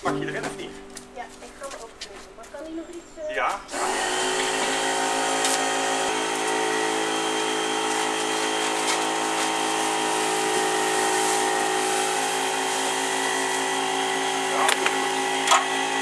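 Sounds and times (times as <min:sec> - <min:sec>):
crane motor humming: 0:03.7 - 0:16.0.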